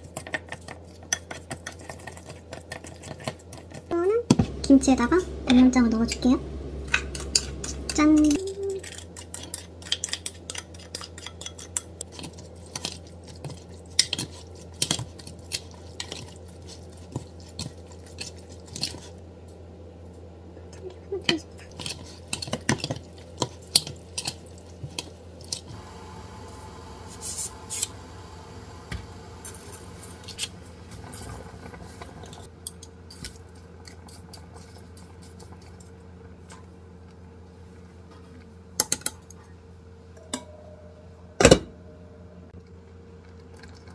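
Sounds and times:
noodles stirred in a pot: 8.8 - 19.2, 21.7 - 27.9.

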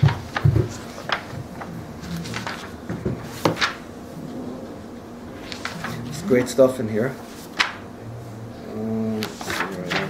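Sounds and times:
book knocking on table: 0.0 - 1.3
book pages rustling: 0.0 - 3.8, 5.4 - 6.6, 7.2 - 7.9, 9.2 - 10.0.

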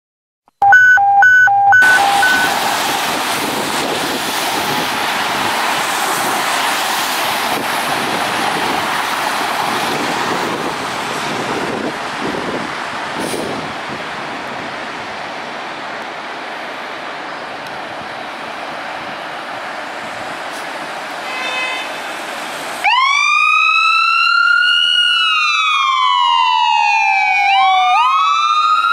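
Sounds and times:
short electronic beeps: 0.5 - 2.6
traffic on a wet road: 1.8 - 28.9.

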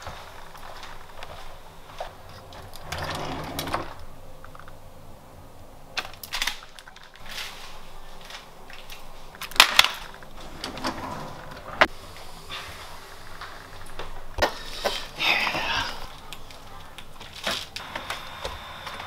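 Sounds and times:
wooden drawer pulled open: 10.4 - 11.9.

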